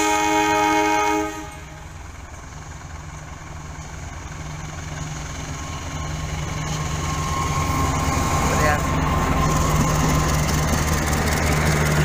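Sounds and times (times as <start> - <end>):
locomotive horn: 0.0 - 2.0
train engine rumble: 0.0 - 12.0.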